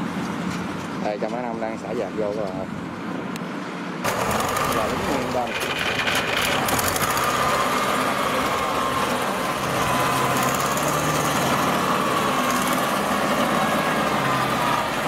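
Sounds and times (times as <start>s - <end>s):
engine running under load: 3.8s - 15.0s.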